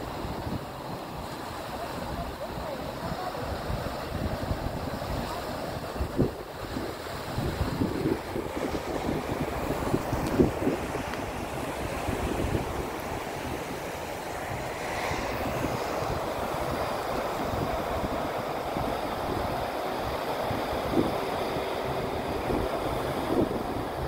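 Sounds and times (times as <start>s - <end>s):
surf washing onto sand: 0.0s - 24.0s
wind buffeting microphone: 0.0s - 24.0s.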